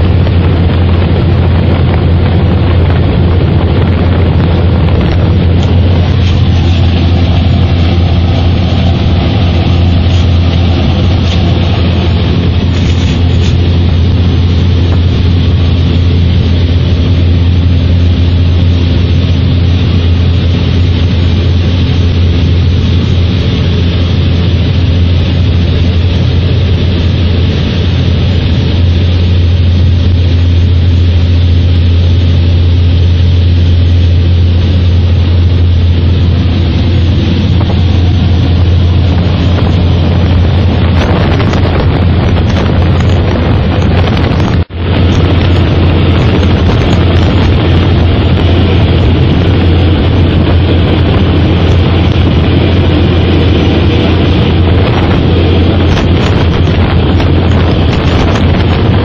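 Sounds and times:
aircraft engines droning in cabin: 0:00.0 - 0:59.0.

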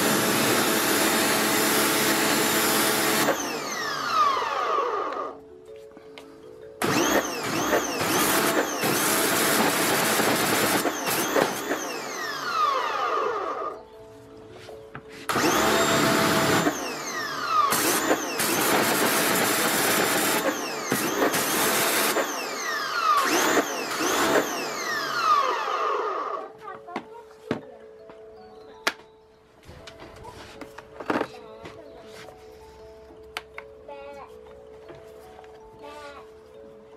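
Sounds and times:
electric pressure washer running: 0:00.0 - 0:05.4, 0:06.8 - 0:13.8, 0:15.3 - 0:26.5.

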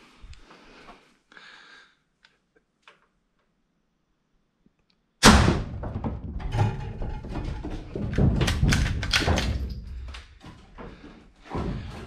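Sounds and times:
loud thump: 0:05.2 - 0:06.9
hard objects knocking and clattering: 0:05.6 - 0:12.0.

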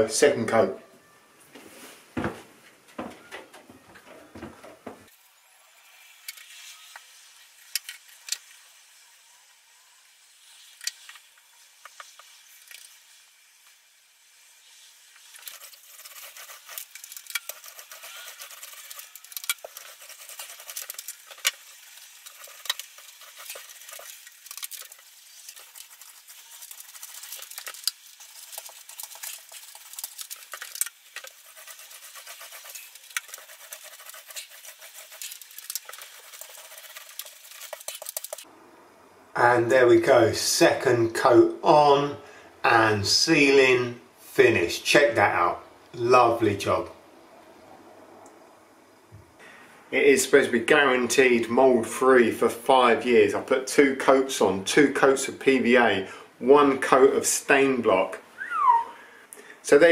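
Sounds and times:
paint roller crackling: 0:15.1 - 0:38.5.

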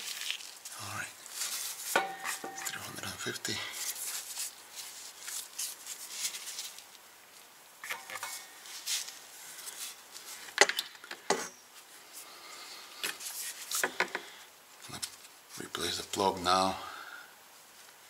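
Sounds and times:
plastic bottle rustling and scraping: 0:00.0 - 0:03.0, 0:03.7 - 0:07.0, 0:07.8 - 0:10.6, 0:13.0 - 0:14.1.

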